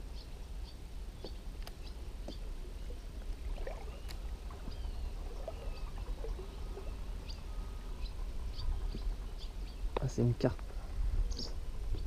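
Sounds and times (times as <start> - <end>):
small birds chirping: 0.0 - 12.0
water gurgling and lapping: 2.3 - 9.6.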